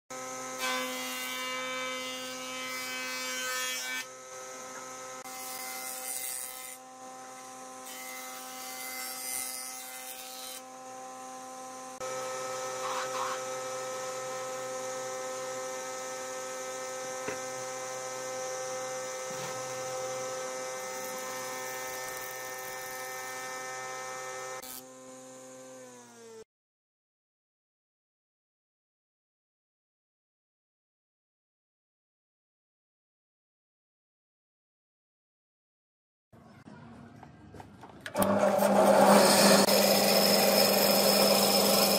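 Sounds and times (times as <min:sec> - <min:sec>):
wood cutting through planer: 0:00.1 - 0:26.4, 0:38.1 - 0:41.9
thickness planer humming: 0:38.1 - 0:41.9.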